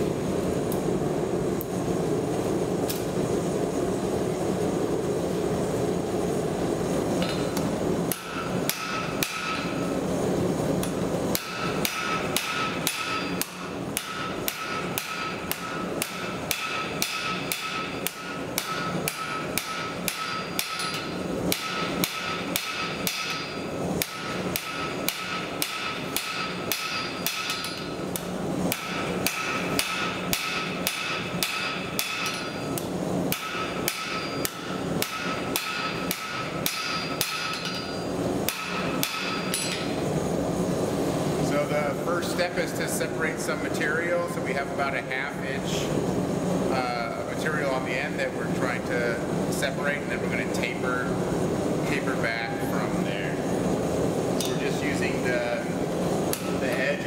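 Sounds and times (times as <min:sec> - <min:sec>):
gas forge rushing: 0:00.0 - 0:57.0
hammer striking steel on anvil: 0:07.2 - 0:09.8, 0:11.3 - 0:40.0, 0:56.3 - 0:56.8
anvil ringing: 0:08.1 - 0:09.7, 0:11.4 - 0:28.0, 0:28.7 - 0:40.0.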